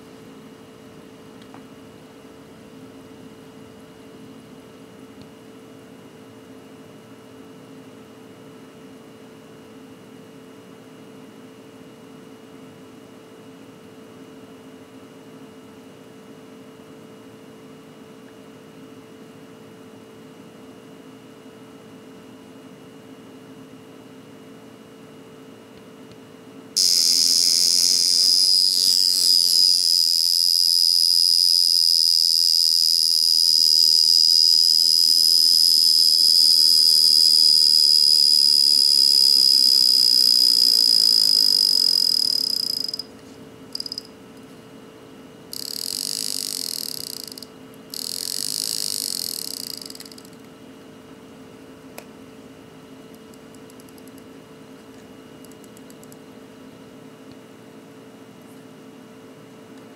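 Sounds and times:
wristwatch alarm buzzing: 26.8s - 43.1s, 43.7s - 44.1s, 45.5s - 50.4s.

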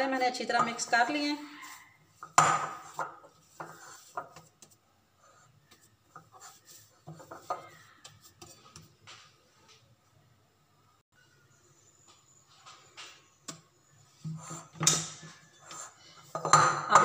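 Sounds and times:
dough squishing and rubbing: 0.0s - 9.8s.

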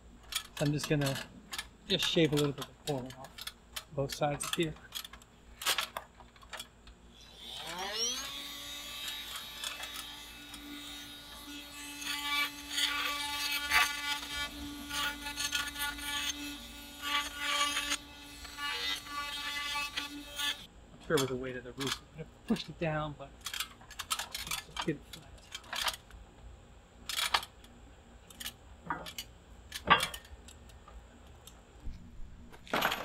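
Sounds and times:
power tool whine: 7.2s - 19.2s
tool grinding wood: 7.2s - 20.7s.

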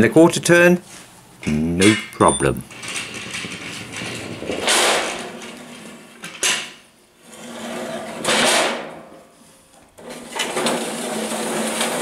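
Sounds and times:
trolley rolling on metal rails: 1.8s - 9.2s, 10.0s - 12.0s.

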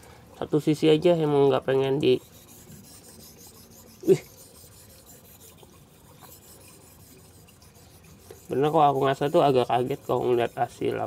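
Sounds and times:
knife rasping on whetstone: 2.0s - 11.0s.

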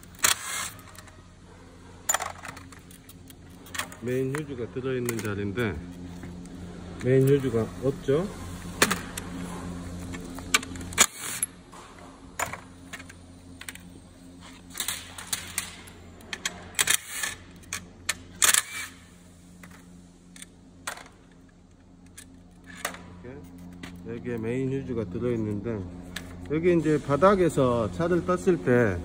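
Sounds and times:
plastic and metal parts rattling: 2.0s - 5.5s.

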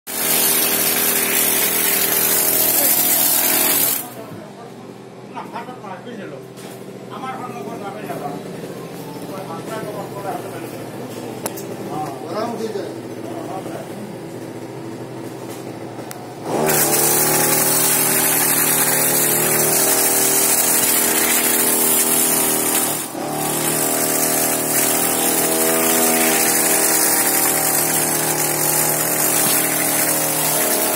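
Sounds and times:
brush cutter engine revving: 0.1s - 4.2s, 16.0s - 30.9s
trimmer cutting grass: 0.1s - 4.2s, 16.3s - 30.9s.

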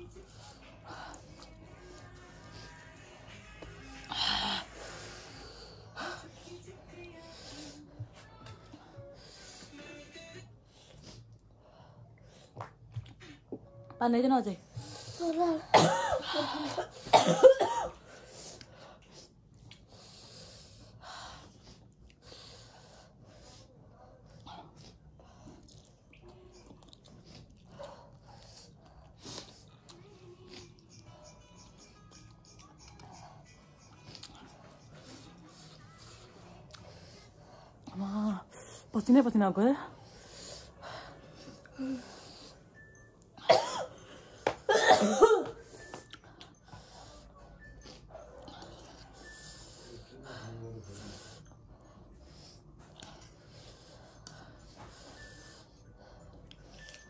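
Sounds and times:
woman coughing: 15.5s - 18.0s, 43.4s - 45.8s.

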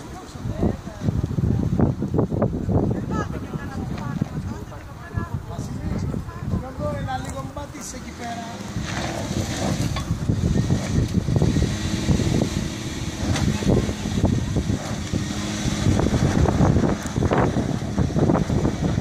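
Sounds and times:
tyres crunching on loose dirt: 6.6s - 19.0s
car engine running hard: 7.8s - 19.0s.

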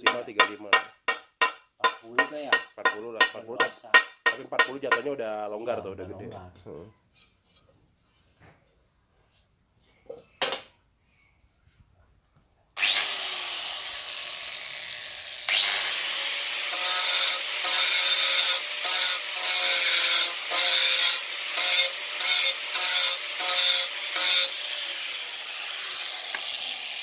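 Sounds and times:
angle grinder whine: 12.8s - 27.0s
grinder disc grinding tile: 15.5s - 27.0s.

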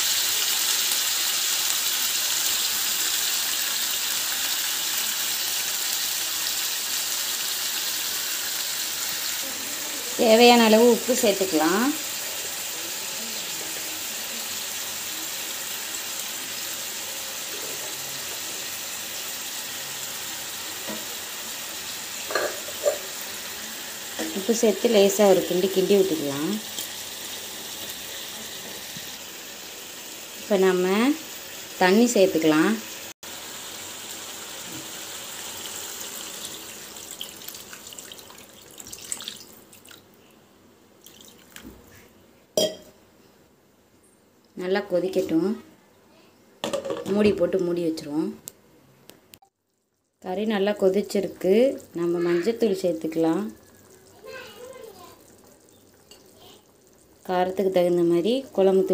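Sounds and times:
chicken sizzling in hot oil: 0.0s - 39.9s, 49.9s - 58.9s
water pouring into a pan: 33.4s - 40.1s, 41.0s - 41.7s, 51.7s - 57.6s
water dripping: 36.2s - 40.1s, 41.0s - 41.7s, 53.6s - 57.5s.

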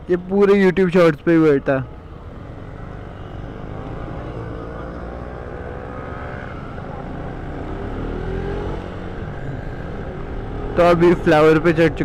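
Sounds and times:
wind and road noise: 0.0s - 12.0s
motorcycle engine accelerating: 1.9s - 12.0s.

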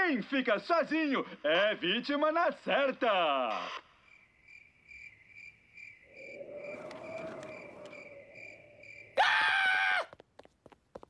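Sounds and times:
cricket chirping: 2.8s - 9.8s
soft eerie wash: 6.0s - 9.2s.

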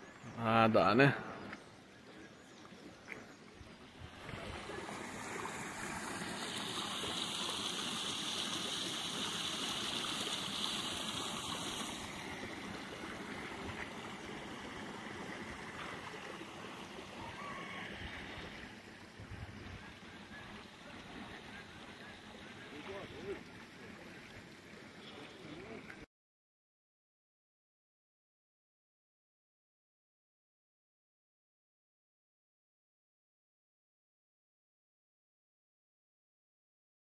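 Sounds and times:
water rushing: 0.3s - 26.1s.

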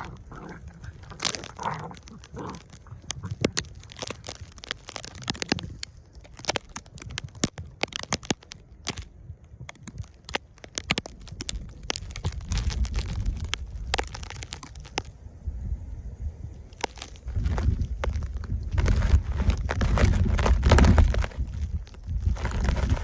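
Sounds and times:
low rumble: 11.2s - 23.0s.

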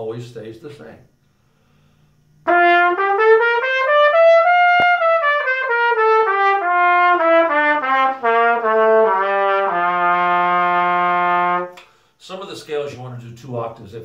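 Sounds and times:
trumpet playing a scale: 2.4s - 11.8s.

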